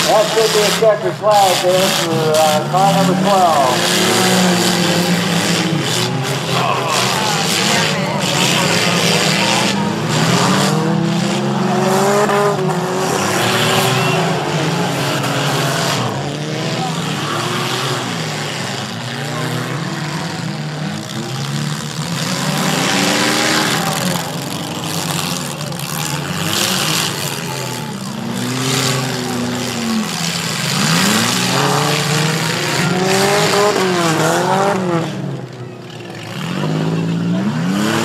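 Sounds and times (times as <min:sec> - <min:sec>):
race car engines revving: 0:00.0 - 0:38.0.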